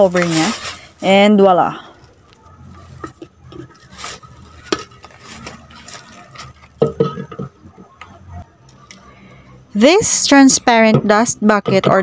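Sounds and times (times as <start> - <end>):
plastic bag rustling: 0.0 - 7.4.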